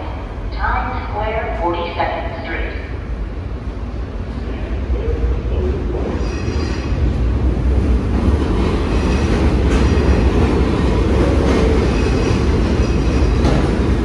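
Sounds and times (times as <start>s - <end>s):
train wheels rumbling on rail: 2.9s - 14.0s
rail joint clacks: 5.9s - 14.0s.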